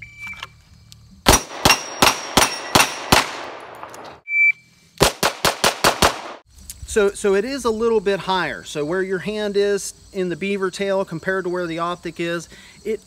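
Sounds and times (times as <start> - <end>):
pistol shots: 1.3 - 4.0, 5.0 - 6.4
short beep: 4.3 - 4.7.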